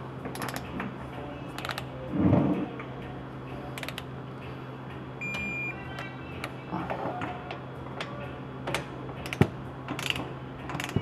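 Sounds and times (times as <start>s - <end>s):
steady low hum: 0.0s - 11.0s
torque wrench clicks: 3.8s - 4.0s, 9.2s - 9.4s, 10.0s - 11.0s.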